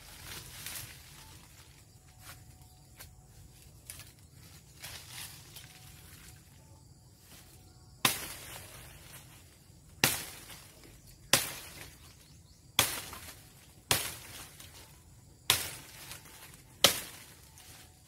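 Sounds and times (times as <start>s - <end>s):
rustle of leaves: 0.0s - 18.0s
branches snapping: 3.8s - 6.4s, 8.0s - 18.0s.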